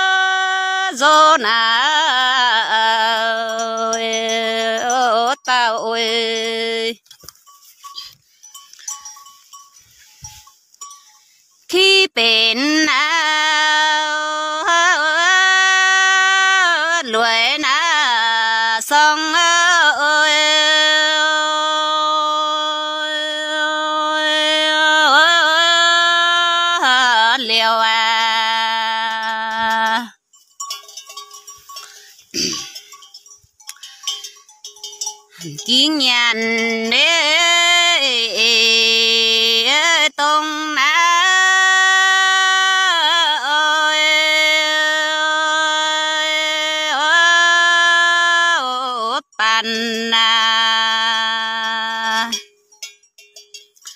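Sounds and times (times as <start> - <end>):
person singing folk song: 0.0 - 53.9
person singing long notes: 35.4 - 52.4.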